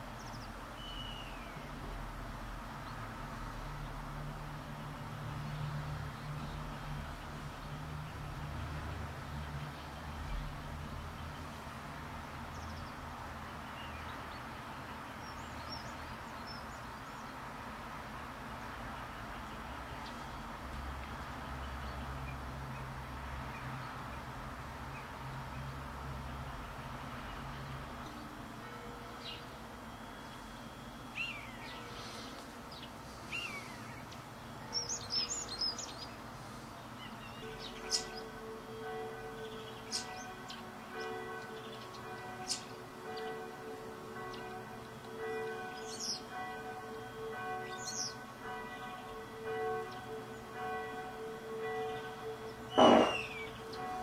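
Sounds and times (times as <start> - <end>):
songbirds chirping: 0.0 - 54.0
steady background hiss: 0.0 - 54.0
small birds chirping: 0.2 - 1.7, 30.2 - 43.5, 44.2 - 46.6, 51.6 - 54.0
high thin bird calls: 52.7 - 53.6.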